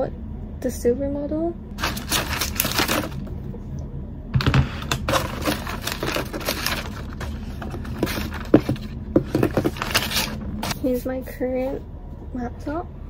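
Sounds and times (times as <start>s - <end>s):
plastic wrap crinkling: 1.8s - 3.3s, 4.8s - 10.8s.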